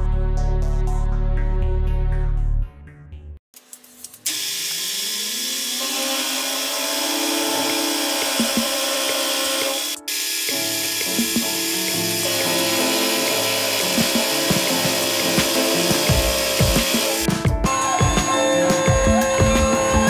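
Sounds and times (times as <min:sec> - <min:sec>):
end mill cutting aluminium: 0:04.3 - 0:20.0
milling machine spindle whine: 0:04.3 - 0:20.0.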